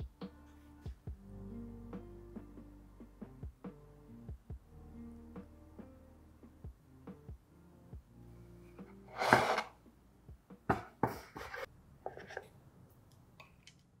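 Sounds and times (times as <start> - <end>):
soft music: 0.0 - 11.7
handling knocks and scrapes: 9.1 - 9.7, 10.7 - 12.5.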